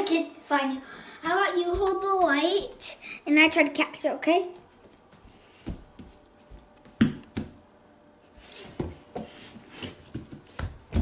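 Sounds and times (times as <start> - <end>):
bare feet thumping on floor: 1.6 - 2.4, 5.1 - 7.6, 10.1 - 11.0.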